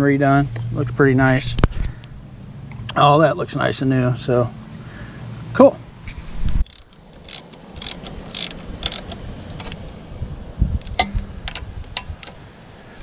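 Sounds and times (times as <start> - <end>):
socket ratchet clicking: 6.6 - 9.6.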